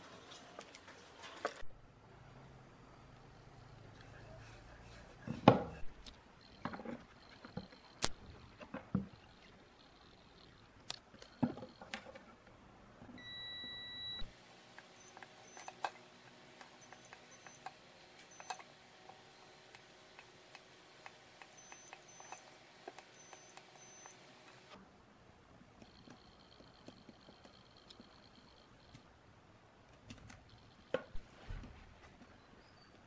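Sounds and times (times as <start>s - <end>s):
multimeter long low beep: 13.2s - 14.3s, 23.1s - 24.2s
multimeter short high beeps: 13.2s - 14.3s, 15.0s - 15.8s, 16.8s - 17.6s, 18.3s - 18.6s, 21.5s - 22.4s, 23.1s - 24.2s
probes ticking on circuit board: 16.6s - 18.6s, 20.6s - 24.2s.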